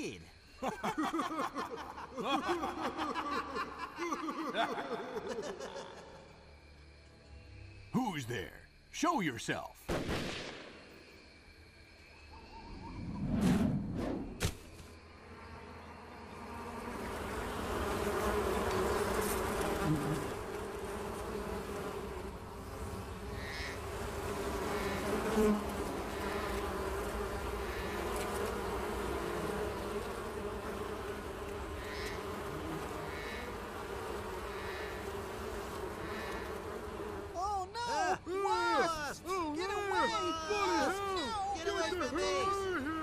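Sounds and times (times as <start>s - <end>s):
buzzing: 15.2s - 37.4s.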